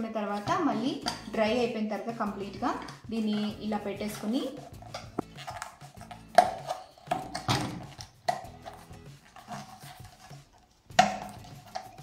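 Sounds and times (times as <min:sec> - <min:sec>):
metallic lid clicks and knocks: 0:01.0 - 0:01.4, 0:04.7 - 0:08.8.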